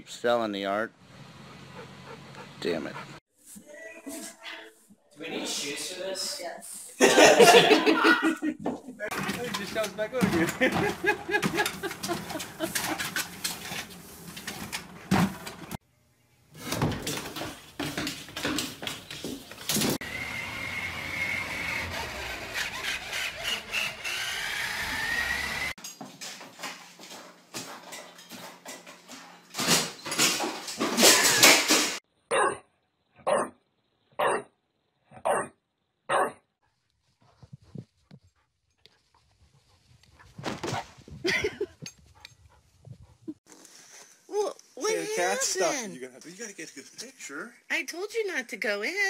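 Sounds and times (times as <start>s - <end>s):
faint outdoor sounds: 0.0s - 10.5s
toy truck motor whine: 20.0s - 25.8s
dog barking: 32.3s - 33.6s, 34.2s - 34.5s, 35.1s - 36.4s.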